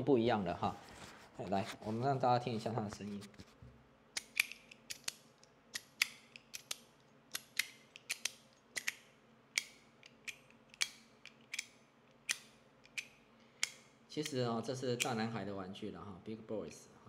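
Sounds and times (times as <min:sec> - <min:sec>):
metal fidget toy clicking: 0:04.2 - 0:09.0.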